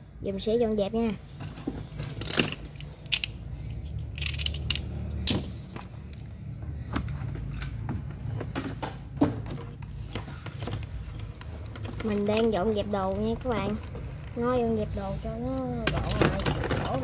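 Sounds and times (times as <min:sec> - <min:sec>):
model parts and tools clicking: 0:02.0 - 0:05.4.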